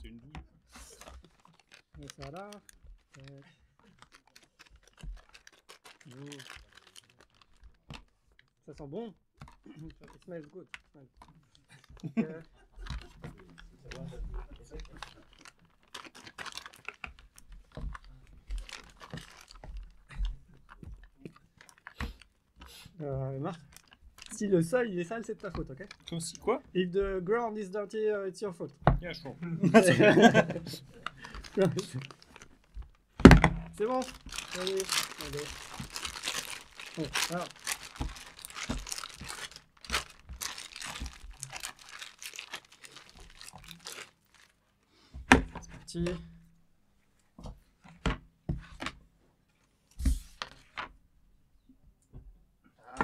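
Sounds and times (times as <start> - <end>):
plastic mold crackling and clicking: 0.2 - 22.4, 23.5 - 27.4, 30.7 - 44.5
plastic bag crinkling: 0.7 - 27.9, 29.0 - 46.2, 50.2 - 50.9.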